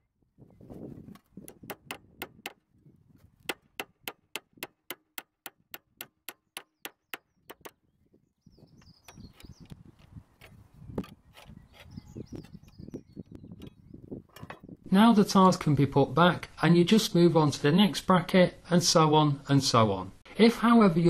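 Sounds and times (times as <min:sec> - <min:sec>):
hammer striking nail: 0:01.5 - 0:02.6, 0:03.5 - 0:07.8.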